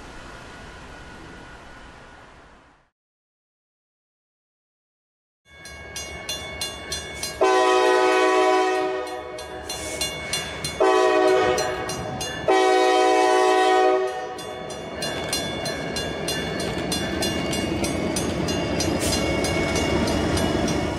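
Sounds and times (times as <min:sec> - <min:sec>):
train engines and wheels: 0:00.0 - 0:02.9, 0:05.5 - 0:20.9
crossing bells ringing: 0:05.5 - 0:20.9
locomotive air horn: 0:07.3 - 0:09.4, 0:10.8 - 0:14.4.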